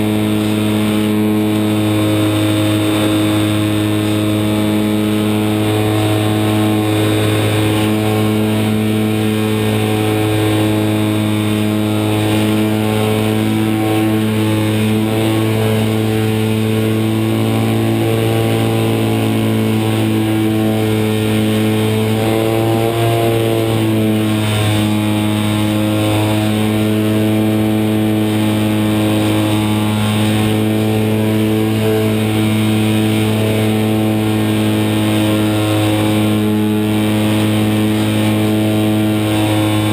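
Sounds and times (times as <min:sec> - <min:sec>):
electric motor and propeller running: 0:00.0 - 0:39.9.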